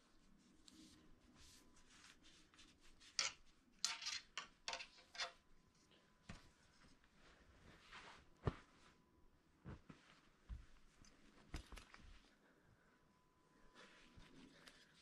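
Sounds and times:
cloth rag rubbing a fishing rod: 0.0s - 3.6s.

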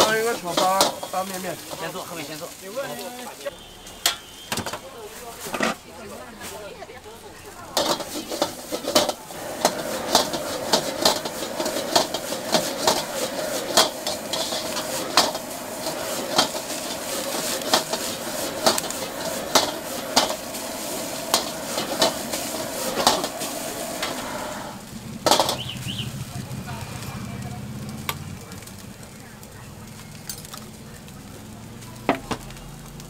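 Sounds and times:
metal ladle clanking on wok: 0.0s - 1.8s, 7.8s - 24.3s, 25.2s - 25.8s
food sizzling: 0.0s - 33.0s.

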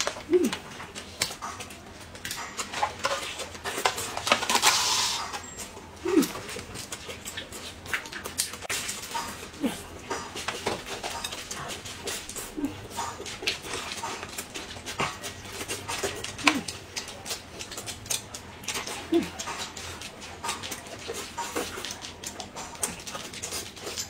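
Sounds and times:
person humming: 0.2s - 0.7s, 6.0s - 6.5s, 16.4s - 16.7s, 19.1s - 19.4s
chewing and lip-smacking: 5.6s - 24.0s.

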